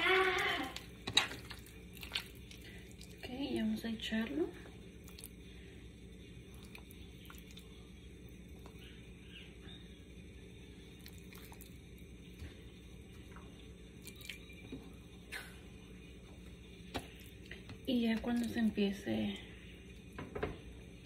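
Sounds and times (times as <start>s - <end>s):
steady low hum: 0.0s - 21.0s
wet squishing of raw chicken: 0.3s - 3.3s.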